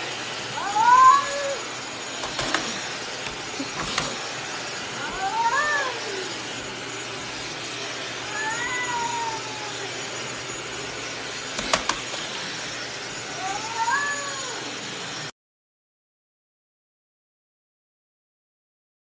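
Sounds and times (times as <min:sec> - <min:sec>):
cat meowing: 0:00.6 - 0:01.7, 0:05.0 - 0:06.4, 0:08.2 - 0:10.1, 0:13.3 - 0:14.7.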